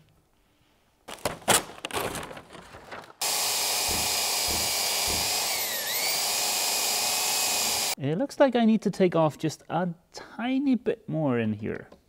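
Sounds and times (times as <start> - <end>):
belt sander running: 3.2 - 8.0.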